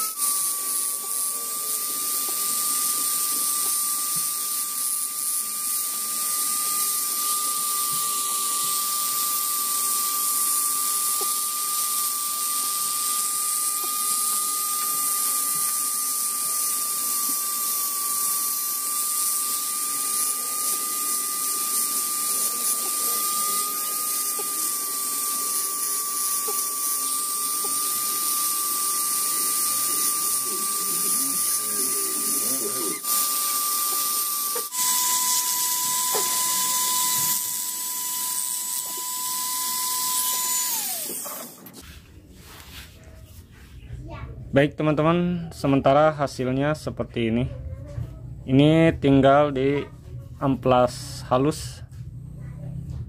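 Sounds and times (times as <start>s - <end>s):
rotary tool whining: 0.0s - 41.8s.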